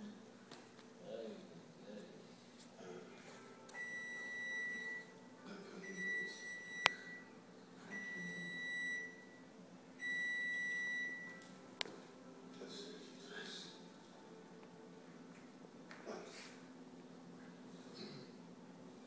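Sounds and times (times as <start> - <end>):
high-pitched steady beep: 3.8 - 5.1, 5.8 - 7.3, 7.9 - 9.4, 10.0 - 11.4.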